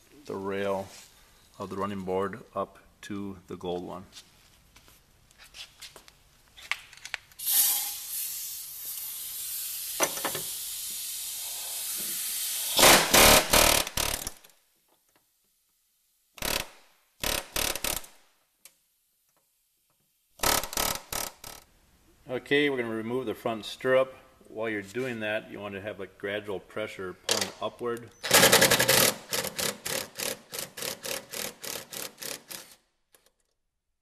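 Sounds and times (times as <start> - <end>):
drill running with high hiss: 7.8 - 12.8
loud sharp rattling bursts: 12.8 - 14.4, 16.4 - 18.2, 20.4 - 21.6, 28.2 - 32.8.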